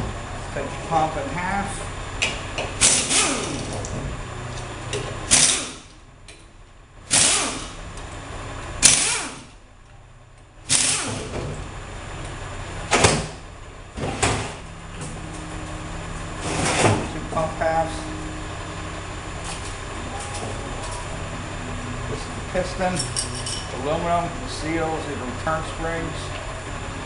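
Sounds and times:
pneumatic wrench bursts: 2.8s - 3.7s, 5.3s - 5.9s, 7.1s - 7.8s, 8.8s - 9.5s, 10.7s - 11.3s.

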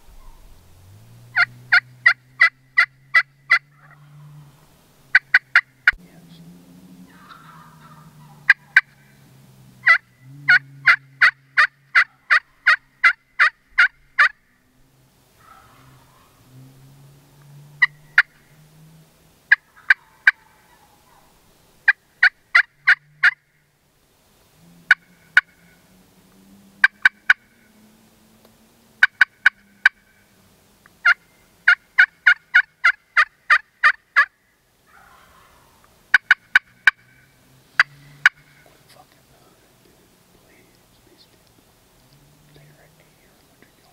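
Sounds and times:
turkey yelping: 0.0s - 6.0s, 7.0s - 14.7s, 15.4s - 16.7s, 17.7s - 18.6s, 19.5s - 23.6s, 24.8s - 25.9s, 26.8s - 27.7s, 29.0s - 30.3s, 31.0s - 38.9s.

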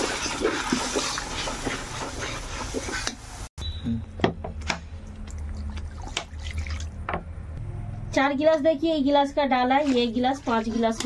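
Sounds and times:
water pouring: 0.0s - 2.1s, 5.2s - 7.0s
paste frying and sizzling: 0.0s - 3.5s
metal spatula scraping pan: 9.6s - 11.0s.

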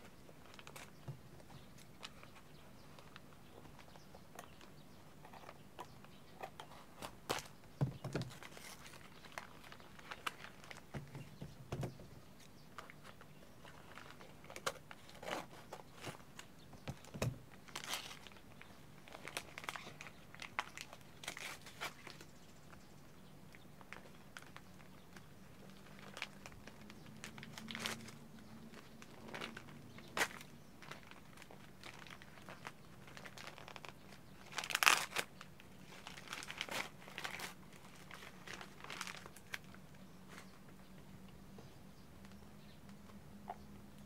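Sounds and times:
paper wrapping tearing and crinkling: 0.0s - 1.0s, 8.2s - 11.2s, 17.5s - 22.3s, 25.6s - 40.4s.

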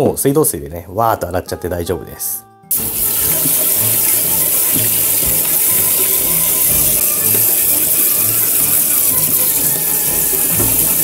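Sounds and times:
tap water running and splashing: 2.7s - 11.0s.

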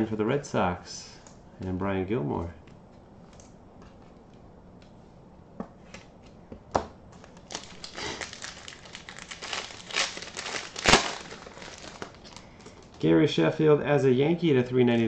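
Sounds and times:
foil wrapper crinkling and tearing: 7.2s - 13.0s.

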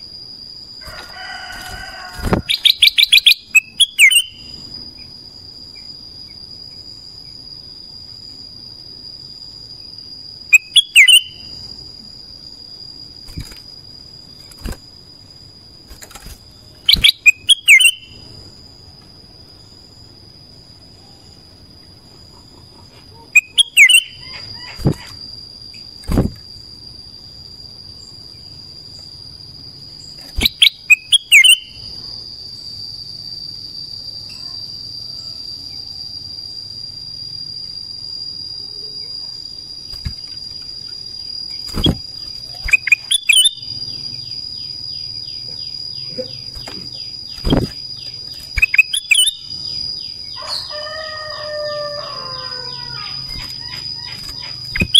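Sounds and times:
high insect drone: 0.0s - 54.9s
bird sharp loud calls: 52.3s - 54.9s.

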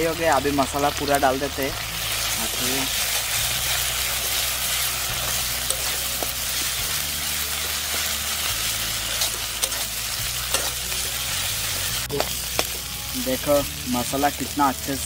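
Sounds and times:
onions sizzling in a wok: 0.0s - 15.0s
metal spatula scraping pan: 3.7s - 6.8s, 7.5s - 11.4s.

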